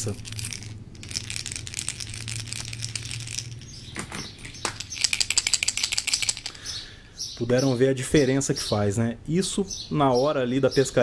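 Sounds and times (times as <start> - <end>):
plastic fishing lures rattling: 0.0 - 6.6.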